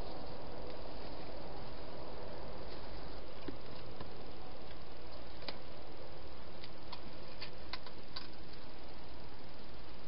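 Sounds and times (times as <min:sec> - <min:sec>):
steady hiss: 0:00.0 - 0:10.0
hedgehog chewing clicks and crunches: 0:06.6 - 0:08.7.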